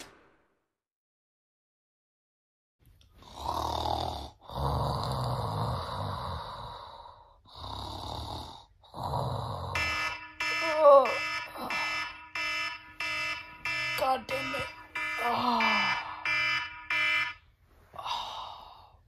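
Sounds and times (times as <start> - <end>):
person snoring: 3.2 - 9.8.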